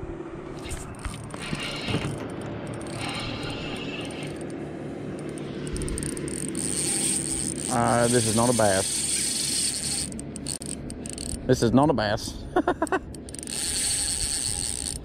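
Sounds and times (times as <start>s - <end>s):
reel drag buzzing: 0.5s - 11.7s, 12.9s - 15.0s
spinning reel cranking: 0.6s - 4.6s, 5.2s - 11.6s, 13.0s - 15.0s.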